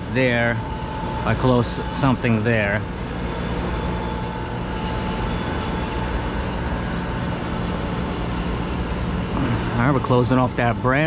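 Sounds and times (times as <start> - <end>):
faint high whine: 0.0 - 11.0
machinery hum: 0.0 - 11.0.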